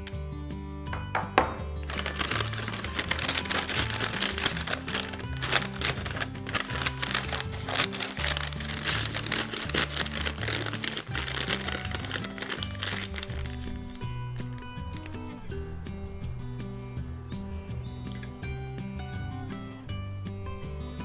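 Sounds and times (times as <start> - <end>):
background music with bass line: 0.0 - 21.0
paper bag crinkling: 1.8 - 13.8.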